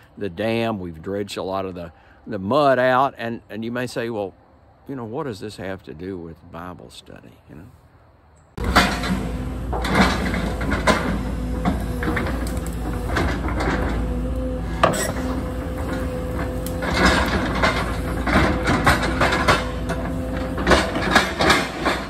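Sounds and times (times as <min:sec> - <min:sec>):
excavator engine whining: 0:08.6 - 0:22.0.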